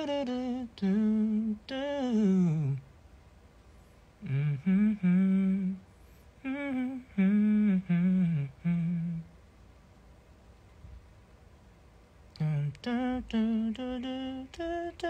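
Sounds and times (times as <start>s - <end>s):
man humming a slow melody: 0.0s - 2.9s, 4.2s - 5.8s, 6.4s - 9.3s, 12.4s - 15.0s.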